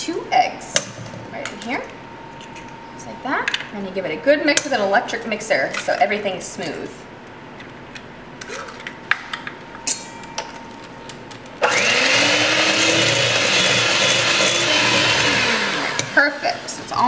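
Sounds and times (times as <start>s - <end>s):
electric hand mixer running: 11.6s - 16.6s.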